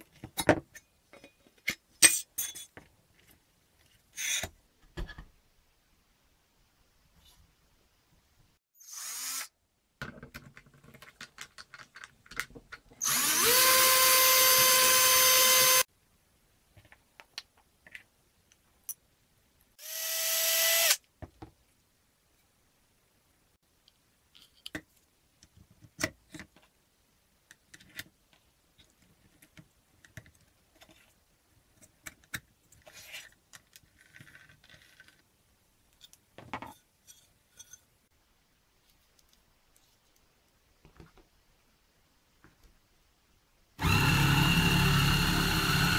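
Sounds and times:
cordless drill whining: 0:08.8 - 0:09.5, 0:13.0 - 0:15.8, 0:19.8 - 0:21.0, 0:43.8 - 0:45.9
clicks and knocks of parts handled: 0:10.0 - 0:13.0.

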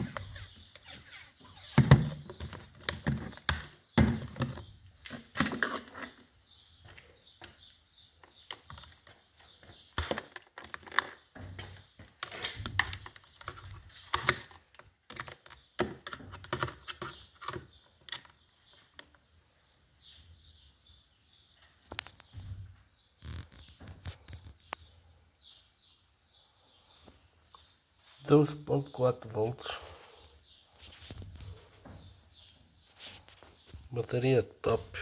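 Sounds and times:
plastic battery case clicks and knocks: 0:01.8 - 0:04.7, 0:09.9 - 0:19.2.

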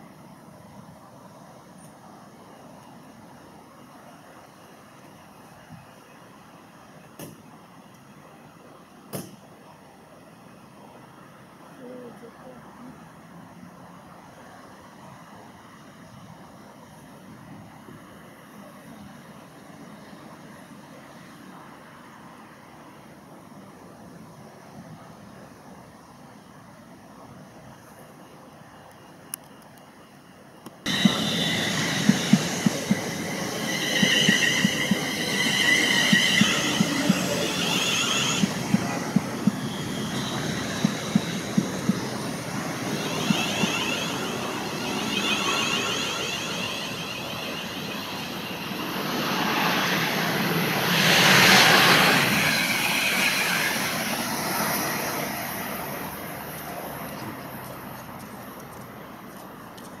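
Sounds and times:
train passing rush: 0:00.0 - 0:28.1, 0:30.8 - 1:00.0
train wheels clicking over rail joints: 0:30.9 - 0:55.0
train whining tone: 0:30.9 - 0:57.5.

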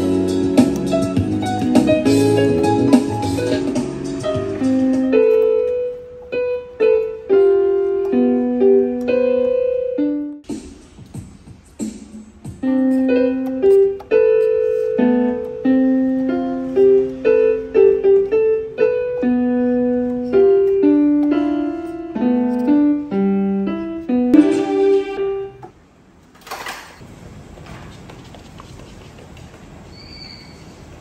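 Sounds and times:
electronic keyboard piano tune: 0:00.0 - 0:11.2, 0:12.4 - 0:25.7.

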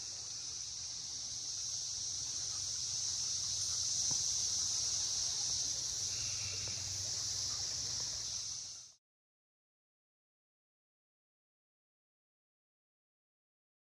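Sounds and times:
insects droning: 0:00.0 - 0:09.0.

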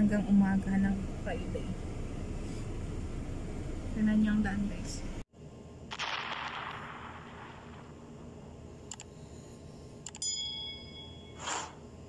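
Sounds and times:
burst of noise: 0:05.9 - 0:08.2
short bell chime: 0:10.2 - 0:11.4.

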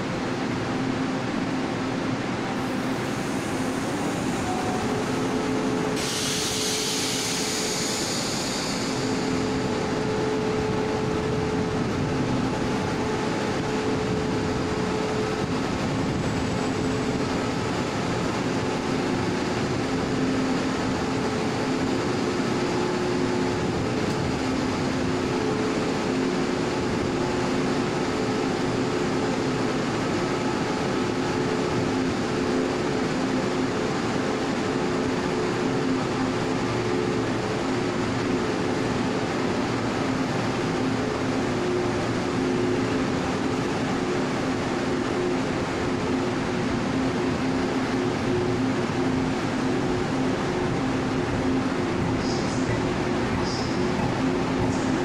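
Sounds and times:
train pulling out: 0:00.0 - 0:55.0
loud hiss: 0:05.9 - 0:09.4.

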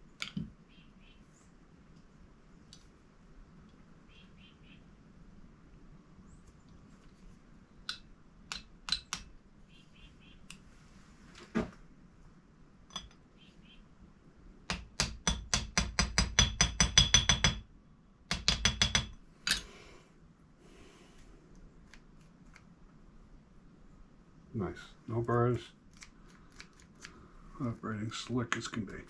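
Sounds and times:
hammer tapping metal punch: 0:14.7 - 0:17.7, 0:18.3 - 0:19.6.

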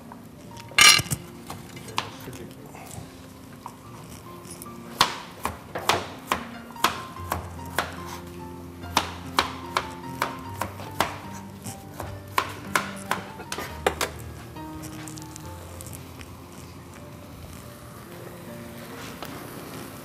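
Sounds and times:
knife chopping on cutting board: 0:05.0 - 0:08.2, 0:08.9 - 0:14.2.

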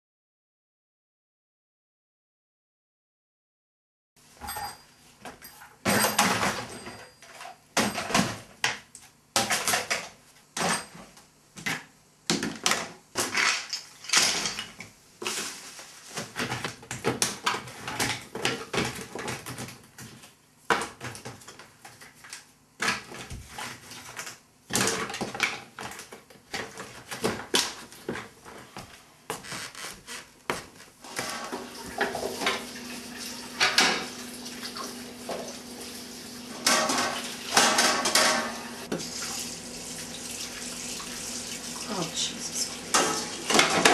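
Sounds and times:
rustling paper scraps: 0:15.2 - 0:16.7.

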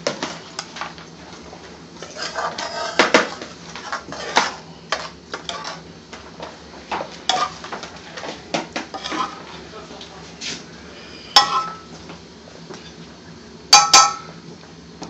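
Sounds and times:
metal spoon clinking on ceramic dish: 0:11.4 - 0:11.9, 0:13.8 - 0:14.3.

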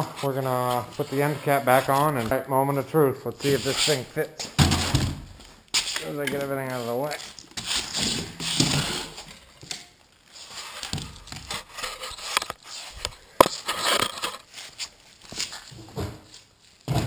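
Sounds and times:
rustling and scuffing from handling: 0:03.4 - 0:17.0.

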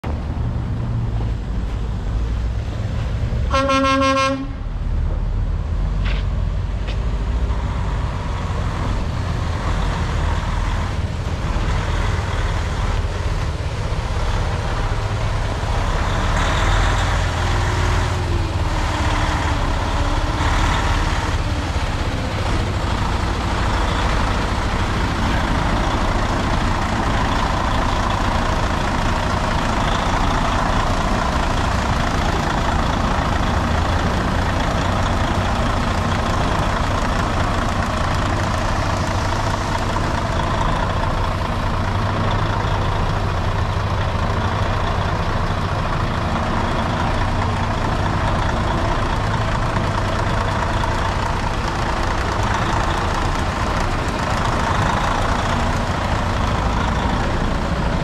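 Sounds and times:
diesel truck engine running: 0:00.0 - 0:58.0
truck horn toot: 0:03.5 - 0:04.7.

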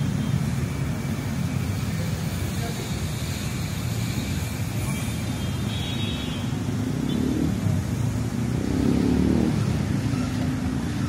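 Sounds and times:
city street traffic: 0:00.0 - 0:11.0
motor vehicle passing: 0:06.8 - 0:11.0.

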